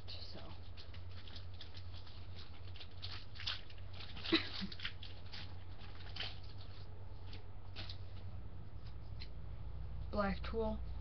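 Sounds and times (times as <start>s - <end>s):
steady low hum: 0.0s - 11.0s
plastic packaging crinkling: 0.1s - 8.3s.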